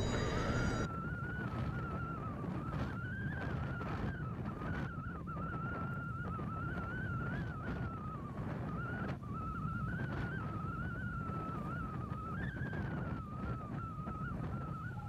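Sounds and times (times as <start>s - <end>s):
ship passing low rumble: 0.0s - 0.9s
wavering high whine: 0.0s - 1.3s.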